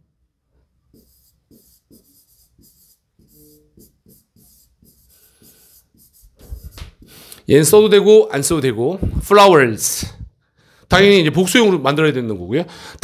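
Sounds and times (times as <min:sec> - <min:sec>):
pen scratching on paper: 0:00.9 - 0:07.2.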